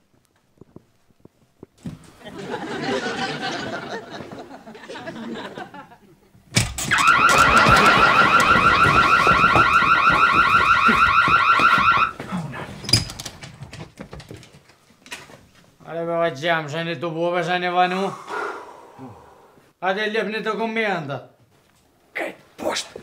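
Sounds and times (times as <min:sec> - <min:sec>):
electronic alarm warbling: 0:06.9 - 0:12.2.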